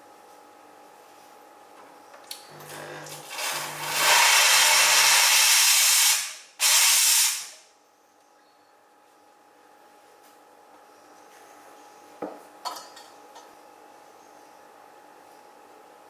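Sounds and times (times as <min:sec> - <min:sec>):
low machine hum: 0:00.0 - 0:04.1, 0:07.6 - 0:16.0
espresso machine steam hiss: 0:03.4 - 0:07.6.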